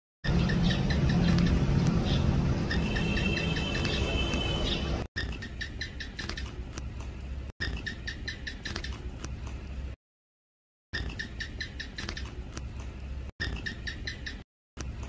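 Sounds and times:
gecko chirping: 0.2 - 6.6, 7.6 - 9.1, 11.0 - 12.4, 13.4 - 14.4.

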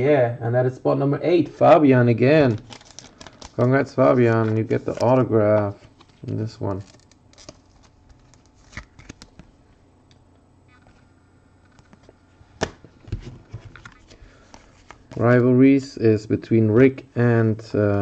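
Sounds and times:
cards rustling and flicking: 2.4 - 9.6.

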